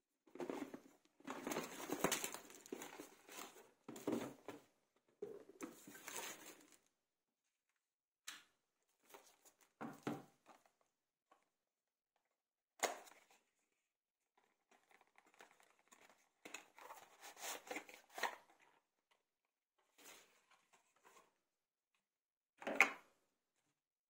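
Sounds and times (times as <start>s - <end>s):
cardboard rustling and crinkling: 0.3s - 6.9s, 14.6s - 18.6s.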